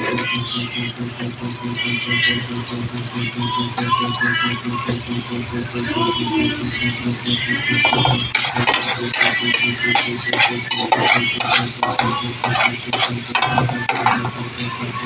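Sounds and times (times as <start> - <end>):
spatula scraping a pan: 7.8 - 14.3
garlic sizzling in oil: 8.3 - 14.1.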